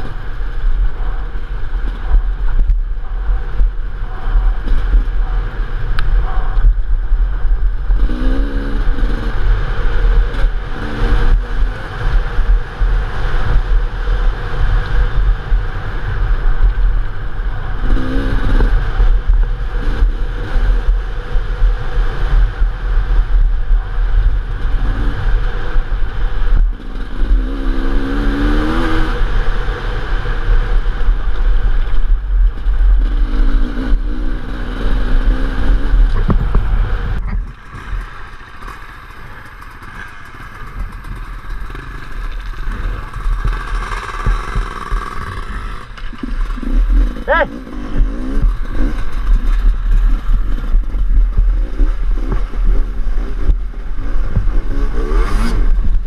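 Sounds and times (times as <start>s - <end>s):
wind buffeting on microphone: 0.0s - 38.1s
dirt bike engine running: 0.0s - 56.0s.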